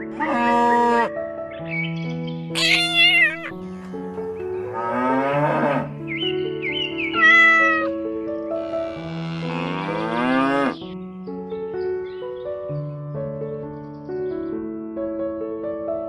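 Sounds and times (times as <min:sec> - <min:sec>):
background music: 0:00.0 - 0:16.0
cow mooing: 0:00.2 - 0:01.1, 0:04.7 - 0:05.9, 0:08.6 - 0:10.8
cat meowing: 0:02.6 - 0:03.6, 0:07.1 - 0:08.0.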